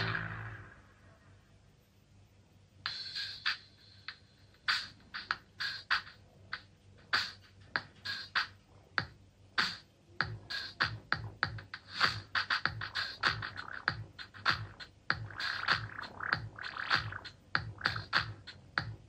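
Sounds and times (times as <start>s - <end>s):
sharp percussion hits through speaker: 0.0s - 0.7s
deep kick drum: 10.2s - 11.6s.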